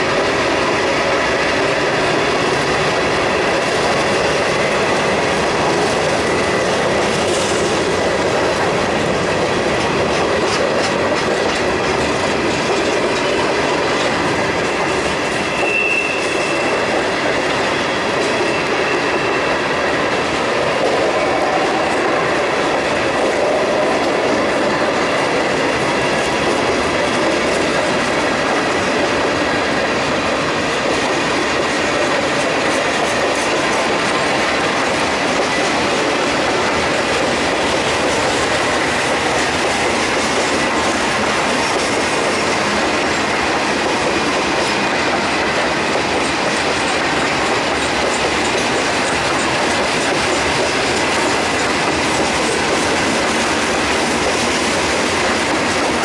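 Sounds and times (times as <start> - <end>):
freight cars rumbling on rails: 0.0 - 56.0
high wheel flange squeal: 15.4 - 17.0, 17.6 - 19.7.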